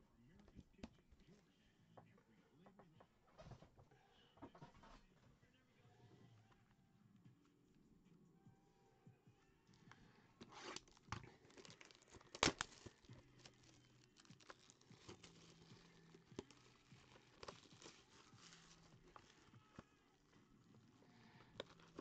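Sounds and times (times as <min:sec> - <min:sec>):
plastic shrink-wrap tearing: 0:10.4 - 0:20.9, 0:21.6 - 0:22.0.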